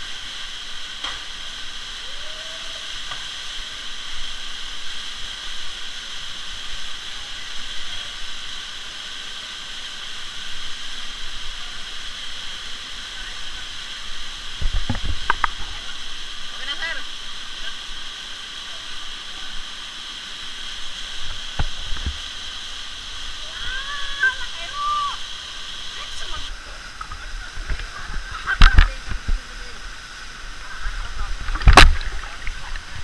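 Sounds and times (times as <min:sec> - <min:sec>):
waterfall rushing: 0:00.0 - 0:33.0.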